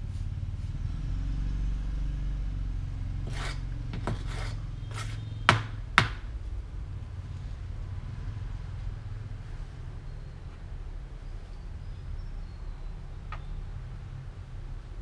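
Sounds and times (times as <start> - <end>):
low engine hum: 0.0 - 15.0
tool scraping bucket of mortar: 3.2 - 5.3.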